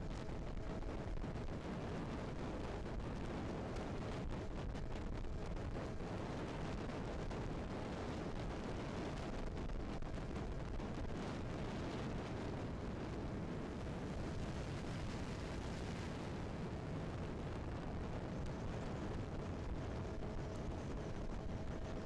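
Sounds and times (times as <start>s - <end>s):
wind buffeting microphone: 0.0s - 22.0s
outboard motor drone: 0.1s - 22.0s.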